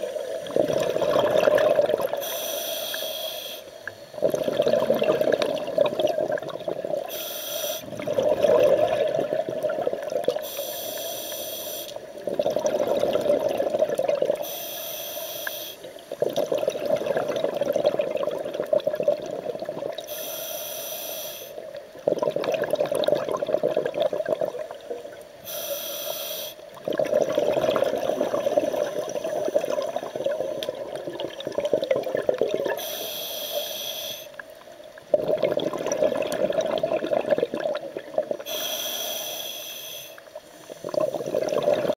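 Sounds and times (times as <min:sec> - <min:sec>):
exhaled bubbles rushing: 0:00.0 - 0:02.2, 0:04.2 - 0:07.1, 0:07.8 - 0:10.4, 0:12.2 - 0:14.4, 0:16.1 - 0:20.1, 0:21.9 - 0:25.0, 0:26.8 - 0:32.8, 0:35.1 - 0:38.5, 0:40.8 - 0:41.9
diver inhaling through regulator: 0:02.1 - 0:04.5, 0:07.0 - 0:08.8, 0:10.4 - 0:12.0, 0:14.4 - 0:15.9, 0:20.1 - 0:21.6, 0:25.4 - 0:26.6, 0:32.7 - 0:34.4, 0:38.4 - 0:41.5.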